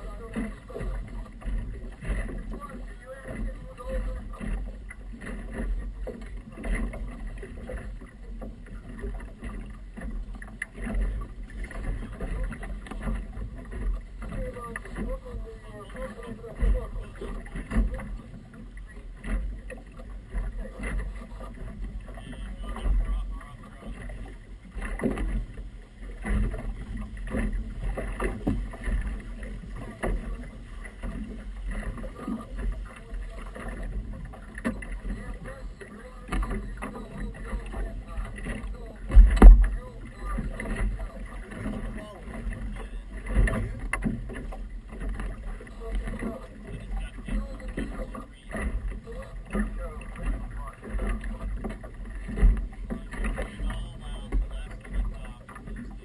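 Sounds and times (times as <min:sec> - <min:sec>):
water slapping against boat hull: 0:00.0 - 0:56.0
low rumble: 0:25.5 - 0:56.0.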